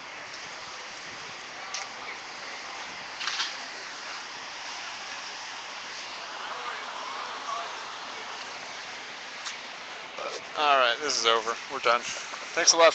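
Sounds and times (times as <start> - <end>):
outdoor street noise: 0.0 - 12.9.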